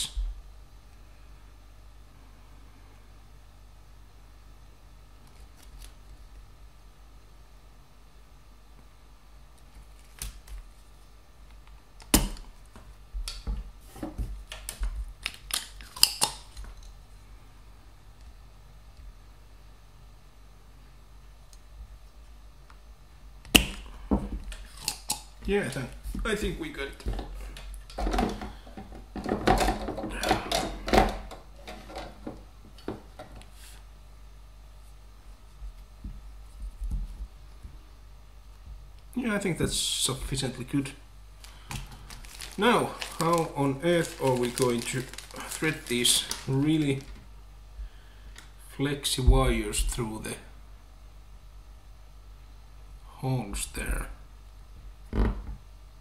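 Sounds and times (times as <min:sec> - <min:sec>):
rustling: 0:41.4 - 0:47.3.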